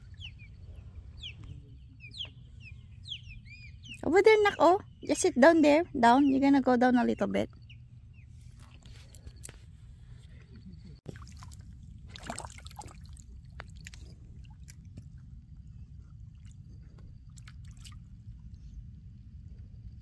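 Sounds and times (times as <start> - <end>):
steady low rumble: 0.0 - 20.0
small clicks and splashes: 11.1 - 15.2, 16.3 - 18.1.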